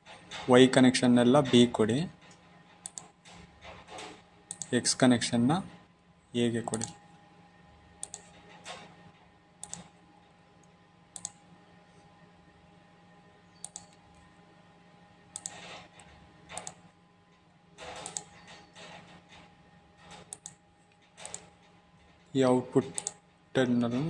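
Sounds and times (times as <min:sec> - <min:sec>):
faint steady hum: 0:00.0 - 0:24.0
computer mouse clicks: 0:02.8 - 0:03.4, 0:04.0 - 0:04.7, 0:06.7 - 0:07.0, 0:08.0 - 0:08.9, 0:09.6 - 0:09.9, 0:10.6 - 0:11.4, 0:13.6 - 0:14.0, 0:15.3 - 0:16.8, 0:17.8 - 0:19.0, 0:20.0 - 0:21.5, 0:22.9 - 0:23.2.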